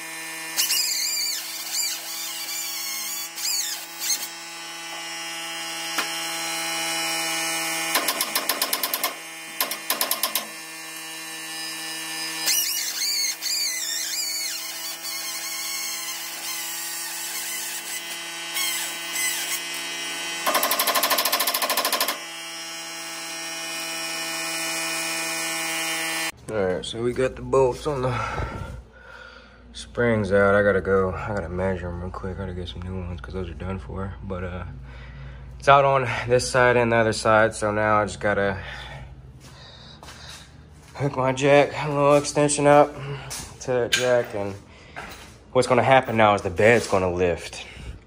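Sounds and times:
impact wrench hammering: 0:05.9 - 0:06.4, 0:07.8 - 0:10.8, 0:17.4 - 0:22.4.

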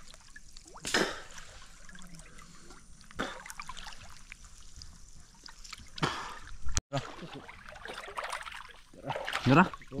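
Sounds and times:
water splashing and trickling: 0:00.0 - 0:10.0
loud splashes: 0:06.0 - 0:10.0.

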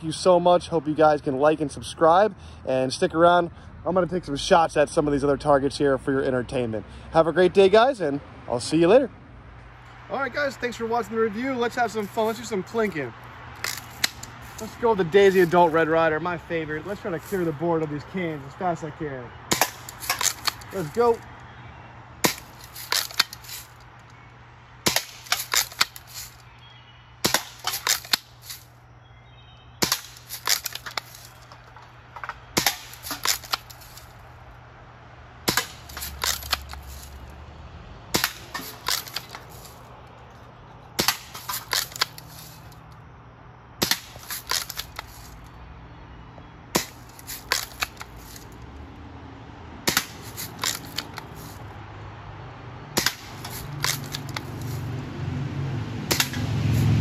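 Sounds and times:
pellets striking cans: 0:19.5 - 0:21.2, 0:22.2 - 0:23.7, 0:24.9 - 0:26.4, 0:27.2 - 0:28.6, 0:29.8 - 0:34.1, 0:35.5 - 0:37.2, 0:38.1 - 0:39.8, 0:41.0 - 0:42.6, 0:43.8 - 0:45.3, 0:46.8 - 0:48.5, 0:49.9 - 0:51.6, 0:53.0 - 0:54.8
bb gun shots popping: 0:56.1 - 0:56.5.

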